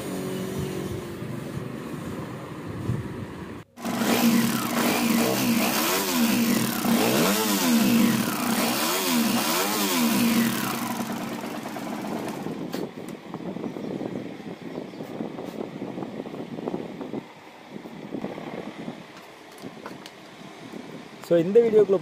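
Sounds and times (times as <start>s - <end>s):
motorcycle engine revving: 3.8s - 12.8s.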